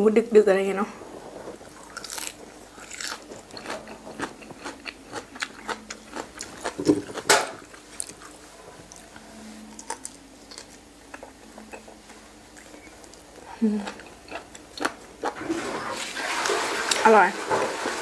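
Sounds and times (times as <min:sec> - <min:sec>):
crunchy chewing: 0:01.2 - 0:15.4.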